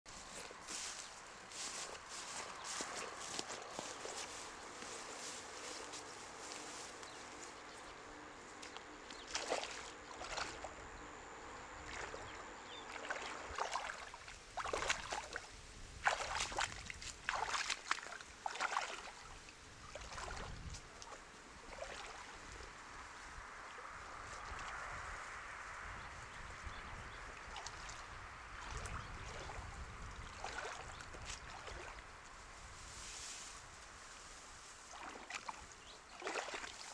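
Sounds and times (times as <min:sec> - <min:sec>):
wading through water splashing: 0:00.1 - 0:07.6, 0:08.6 - 0:10.8, 0:11.8 - 0:22.6, 0:27.4 - 0:32.1, 0:34.8 - 0:36.9.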